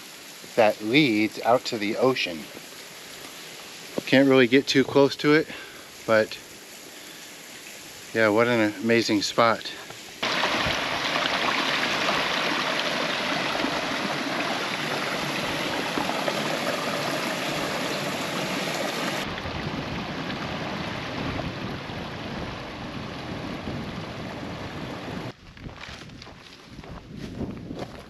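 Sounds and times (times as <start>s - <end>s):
water rushing into chasm: 10.2s - 24.0s.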